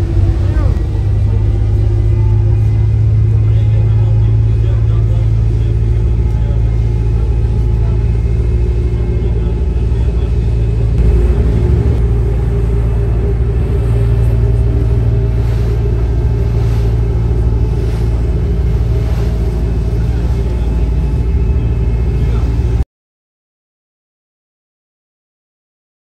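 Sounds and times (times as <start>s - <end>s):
boat engine rumbling: 0.0s - 22.8s.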